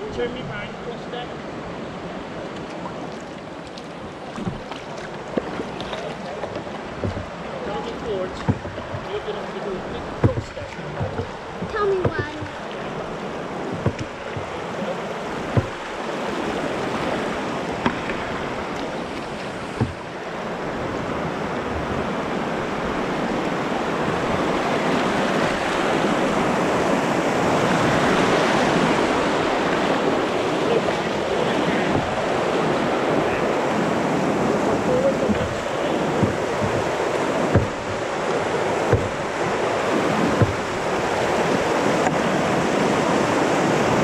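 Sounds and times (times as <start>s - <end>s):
rushing white water: 0.0s - 44.0s
sharp knocks: 4.4s - 4.8s, 6.5s - 7.4s, 8.3s - 9.2s, 10.1s - 12.7s, 13.7s - 14.6s, 15.4s - 16.0s, 17.8s - 18.3s, 19.4s - 20.1s, 35.2s - 38.1s, 38.8s - 39.4s, 40.3s - 40.9s.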